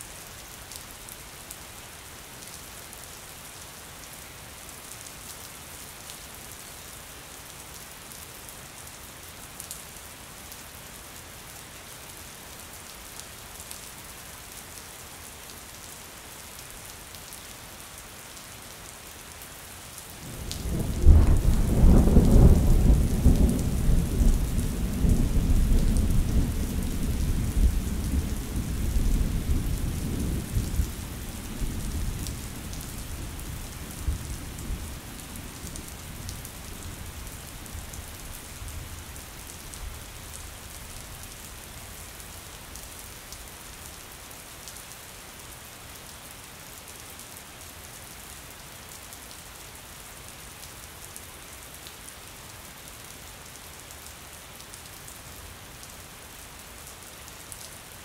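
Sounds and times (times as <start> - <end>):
steady rain falling: 0.0 - 58.0
deep roll of thunder: 20.6 - 28.7.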